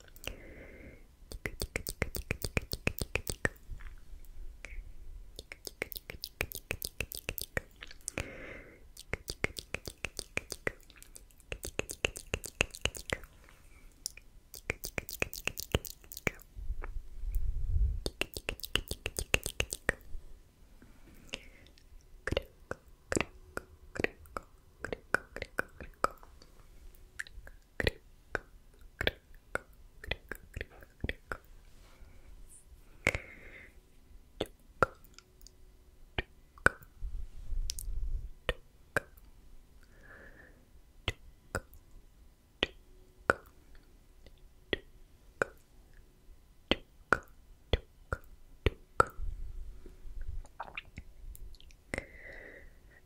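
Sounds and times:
wet tongue and lip clicks: 0.0s - 0.4s, 1.3s - 4.0s, 4.6s - 8.3s, 8.9s - 17.4s, 18.0s - 20.1s, 21.3s - 26.4s, 27.2s - 31.5s, 34.4s - 35.6s, 36.2s - 36.9s, 37.6s - 39.3s, 41.0s - 41.8s, 42.6s - 46.0s, 46.7s - 49.2s, 50.3s - 52.1s.

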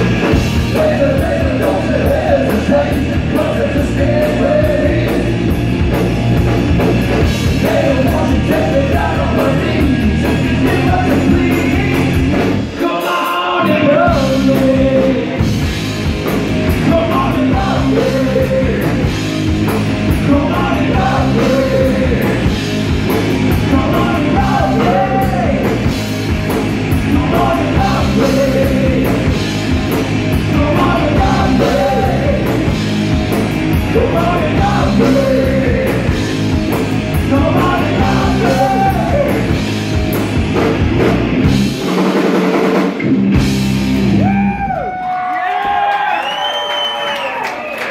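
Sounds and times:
man singing: 0.0s - 5.4s, 7.4s - 15.5s, 16.7s - 19.2s, 20.1s - 22.6s, 23.5s - 26.0s, 26.9s - 29.4s, 30.3s - 32.8s, 33.8s - 36.2s, 37.1s - 39.6s
bass guitar: 0.0s - 45.9s
electric guitar: 0.0s - 45.9s
drums: 0.0s - 47.9s.

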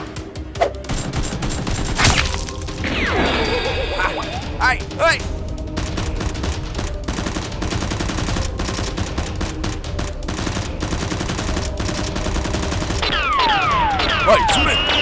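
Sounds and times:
falling whistles: 14.5s - 15.0s.

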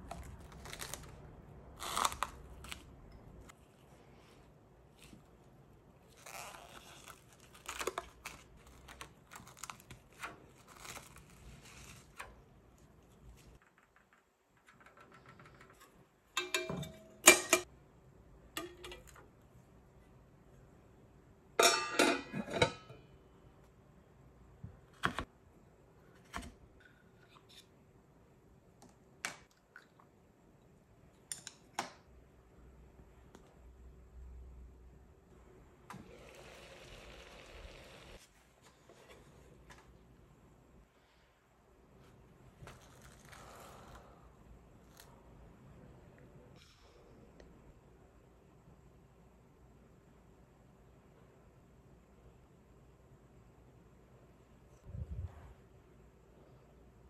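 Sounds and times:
cling wrap crinkling: 0.0s - 3.5s
ceramic bowl clattering on metal: 16.4s - 17.6s, 21.6s - 23.0s.

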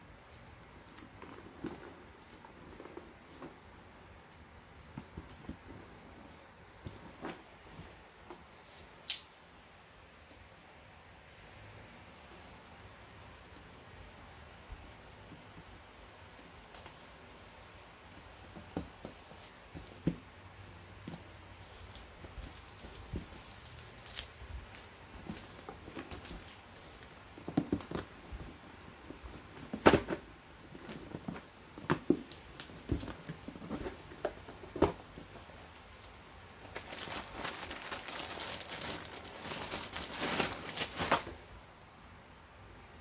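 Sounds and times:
plastic wrapping crinkling: 21.0s - 41.5s.

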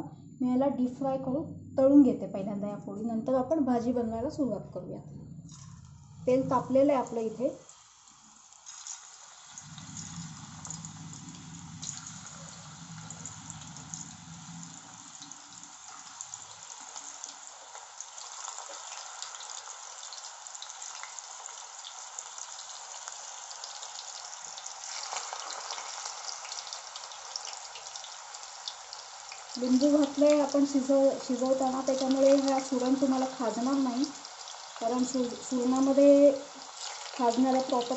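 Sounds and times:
low hum: 0.0s - 7.6s, 9.6s - 15.7s
hot oil sizzling and crackling: 5.5s - 37.9s.

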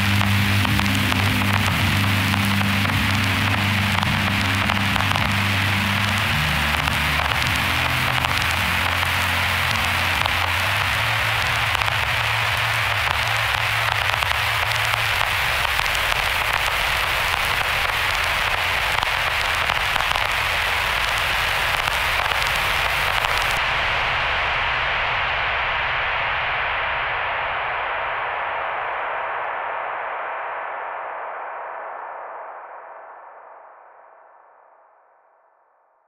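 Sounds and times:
low droning tone: 0.0s - 15.6s
static hiss and crackle: 0.0s - 34.2s.

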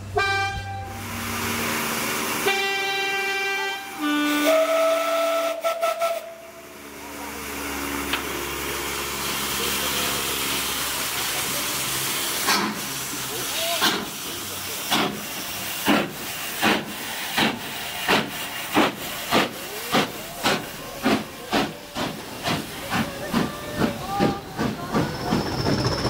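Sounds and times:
steam hissing: 0.9s - 26.0s
horn-like tones: 2.4s - 6.6s.

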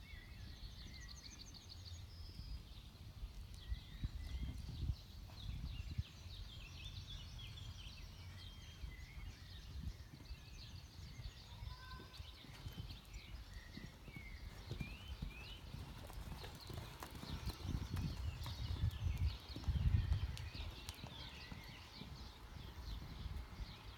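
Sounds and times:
small birds chirping: 0.0s - 23.9s
pony hooves thudding on sand: 11.9s - 23.8s.

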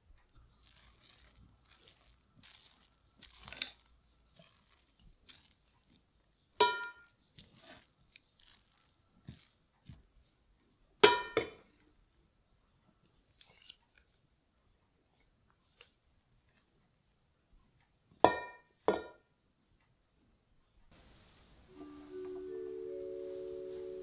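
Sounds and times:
wooden spoon scraping rice in pot: 0.2s - 10.1s
spoon clinking against pot: 6.6s - 7.2s.

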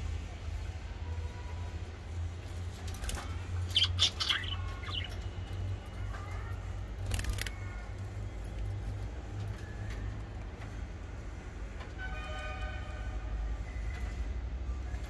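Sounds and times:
budgerigars chirping: 3.6s - 5.4s.

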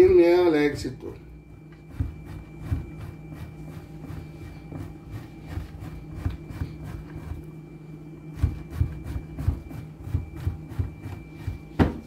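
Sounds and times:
cheese rasping on grater: 1.9s - 7.5s.

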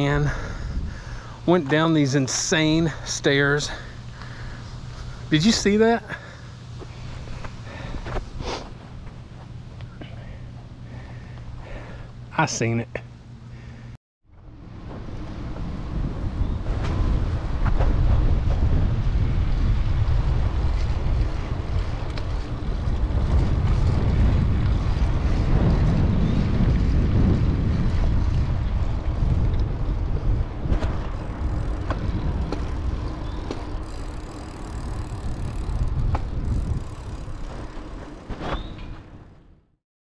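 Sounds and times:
wind rushing over microphone: 0.0s - 1.6s, 14.4s - 39.4s.

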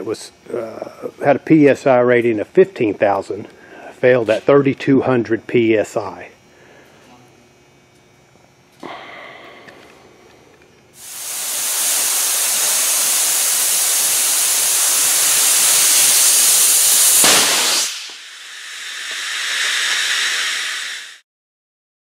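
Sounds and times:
loud high-pressure hiss: 11.0s - 21.2s
quieter hiss: 11.0s - 21.2s.

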